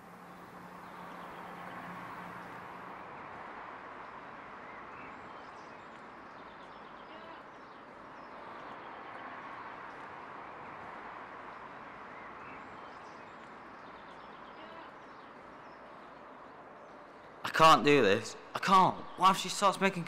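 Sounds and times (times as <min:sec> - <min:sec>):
birds chirping: 0:00.0 - 0:02.9.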